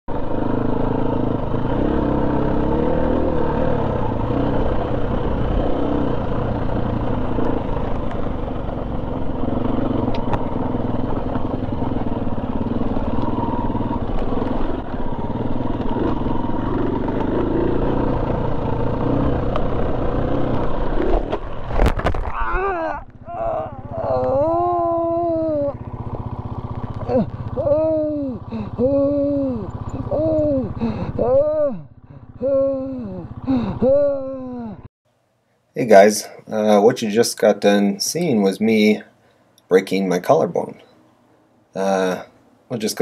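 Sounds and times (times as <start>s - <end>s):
dirt bike engine at low revs: 0.1s - 34.9s.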